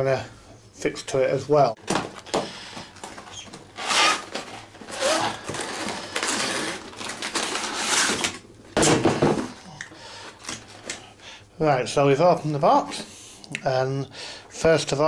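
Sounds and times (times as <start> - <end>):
cardboard rustling and scraping: 3.0 - 8.4.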